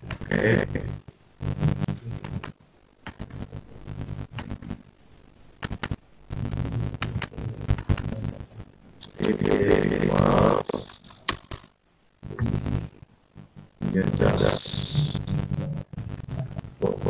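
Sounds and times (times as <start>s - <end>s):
low hum: 0.0s - 17.0s
clicks: 1.8s - 3.5s, 5.6s - 6.0s, 6.9s - 9.5s, 10.7s - 12.6s.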